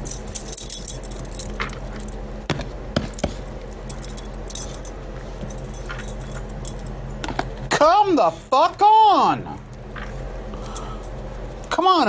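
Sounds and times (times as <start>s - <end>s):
metallic jingling and clinking: 0.0s - 2.2s, 3.1s - 7.1s
steady low hum: 0.0s - 12.0s.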